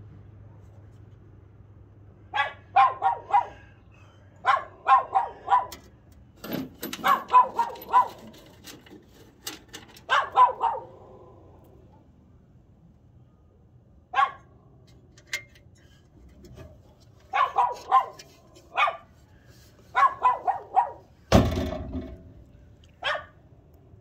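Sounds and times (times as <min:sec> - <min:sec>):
dog barking: 0:02.3 - 0:03.8, 0:04.4 - 0:05.8, 0:07.0 - 0:08.3, 0:10.1 - 0:11.4, 0:14.1 - 0:14.5, 0:17.3 - 0:19.1, 0:19.9 - 0:21.1, 0:23.0 - 0:23.4
loud thump with rumble: 0:21.3 - 0:22.3.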